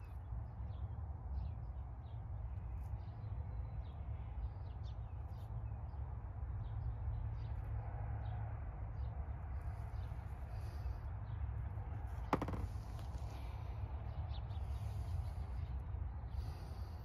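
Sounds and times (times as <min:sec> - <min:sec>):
birds chirping: 0:12.2 - 0:17.0.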